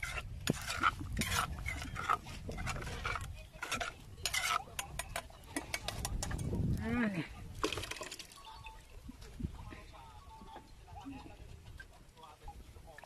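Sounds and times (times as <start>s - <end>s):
metal spoon scraping clay bowl: 0.0s - 6.8s.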